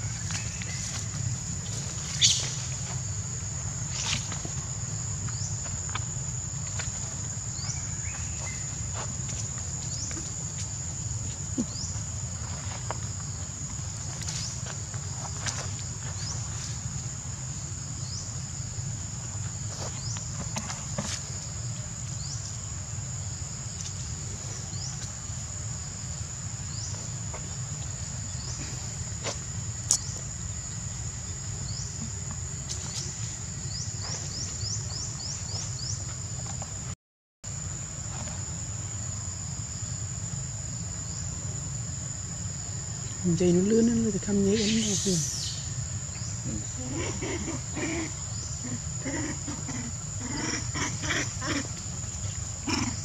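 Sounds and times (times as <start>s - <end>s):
high-pitched insect drone: 37.5s - 53.0s.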